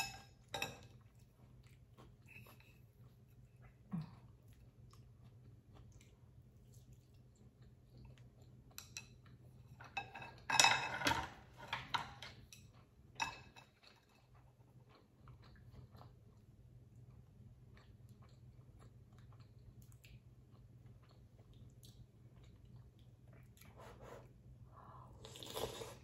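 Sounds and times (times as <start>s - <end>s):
chopsticks and spoon clattering on dishes: 0.0s - 1.0s, 8.7s - 14.3s
faint chewing: 0.4s - 10.0s, 12.2s - 26.0s.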